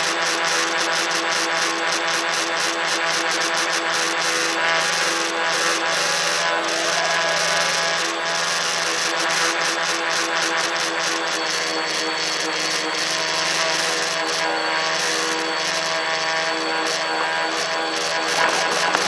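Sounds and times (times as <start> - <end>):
drone propellers buzzing: 12.8 - 19.0.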